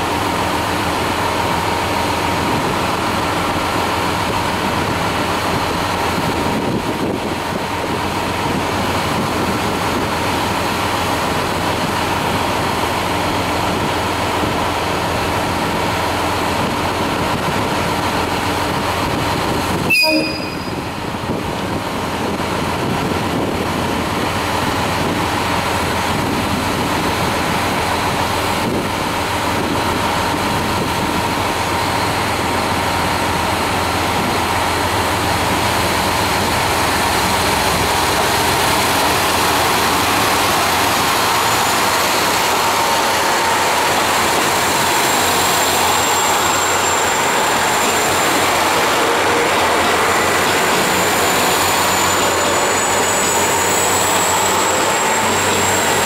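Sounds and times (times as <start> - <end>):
diesel train engines running: 0.0 - 56.0
high whine: 19.7 - 21.7.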